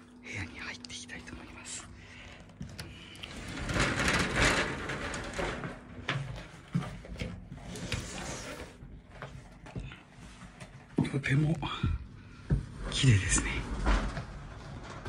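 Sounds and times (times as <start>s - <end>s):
sliding door rumbling on track: 2.8s - 6.8s, 12.6s - 15.0s.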